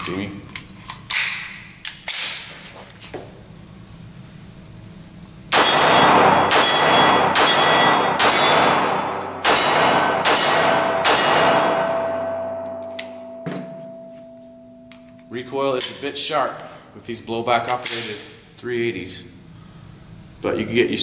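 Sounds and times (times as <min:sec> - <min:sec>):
pistol shots: 0:05.5 - 0:13.4
steel targets ringing: 0:05.5 - 0:15.6.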